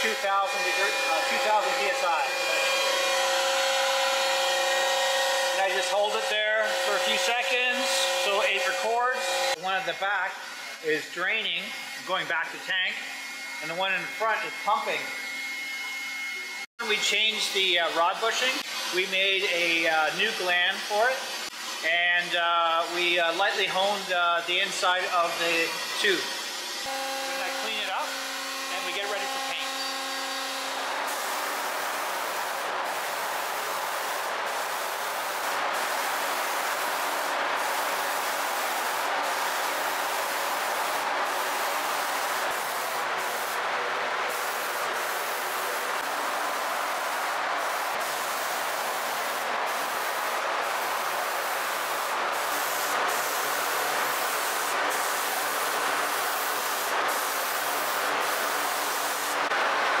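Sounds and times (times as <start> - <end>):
paint spray gun hissing: 28.8 - 59.4.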